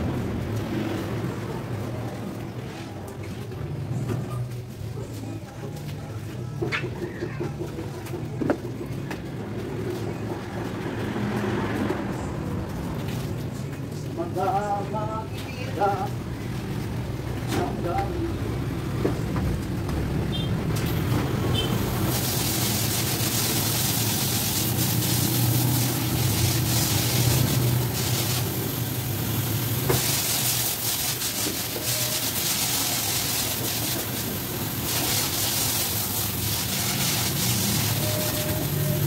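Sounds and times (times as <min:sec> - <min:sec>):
pressure washer motor humming: 0:21.5 - 0:39.0
water spray hissing: 0:21.5 - 0:39.0.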